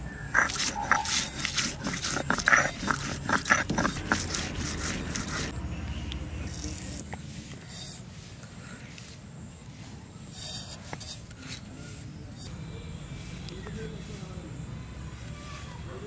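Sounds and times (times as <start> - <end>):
stone crushing and scraping onions: 0.2 - 5.6.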